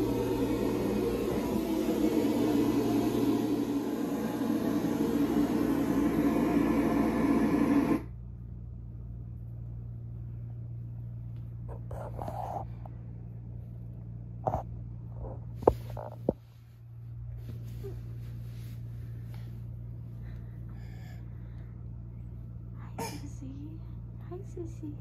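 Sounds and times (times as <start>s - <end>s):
loud steady rushing noise: 0.0s - 8.1s
low steady hum: 0.0s - 25.0s.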